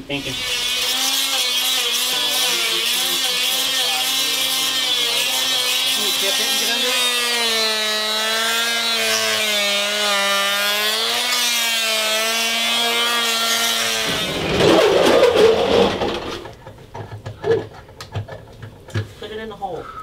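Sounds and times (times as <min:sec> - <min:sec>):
multi-tool buzzing on concrete: 0:00.1 - 0:16.6
rough scraping noise: 0:13.8 - 0:16.6.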